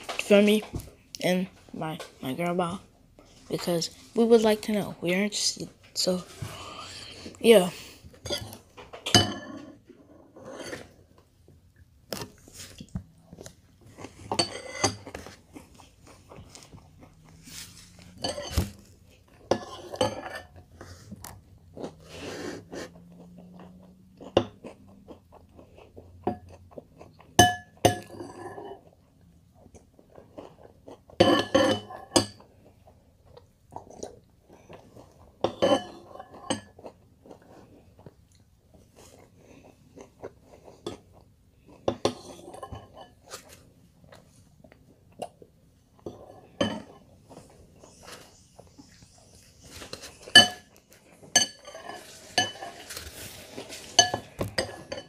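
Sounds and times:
chewing cereal: 15.0 - 18.2, 18.8 - 31.2, 32.4 - 35.4, 36.0 - 42.4.

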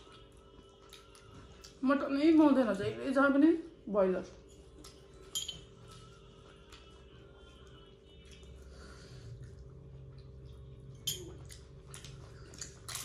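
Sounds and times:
chewing: 0.0 - 1.8, 5.8 - 13.0.

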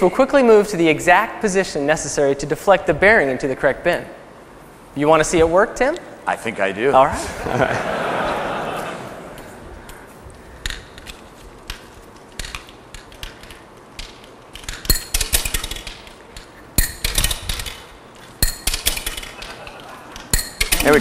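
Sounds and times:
steel ball bearings clicking: 10.6 - 21.0.

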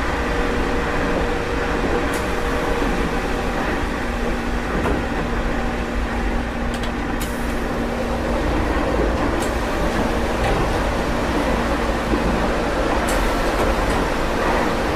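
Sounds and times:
train wheels and motors rumbling: 0.0 - 14.9.

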